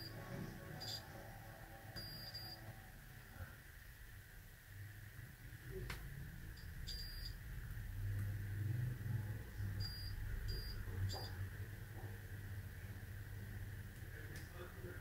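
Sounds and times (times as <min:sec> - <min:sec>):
multimeter high beeps: 0:00.0 - 0:01.1, 0:02.0 - 0:02.7, 0:06.6 - 0:07.4, 0:09.8 - 0:11.4
low steady hum: 0:00.0 - 0:15.0.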